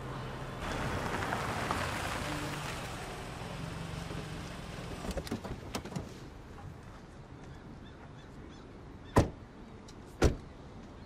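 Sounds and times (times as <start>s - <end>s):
low engine hum: 0.0s - 5.7s
tyres rolling over cobblestones: 0.6s - 5.4s.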